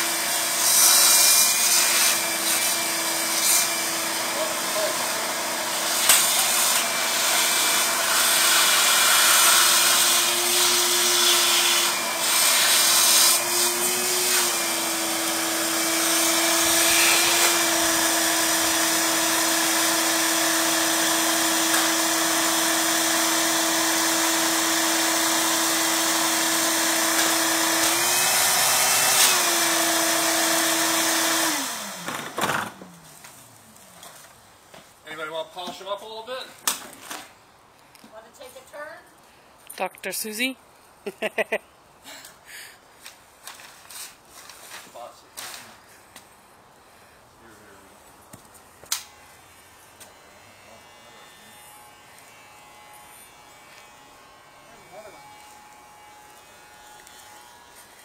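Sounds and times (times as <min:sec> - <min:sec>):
vacuum cleaner motor running: 0:13.4 - 0:32.7.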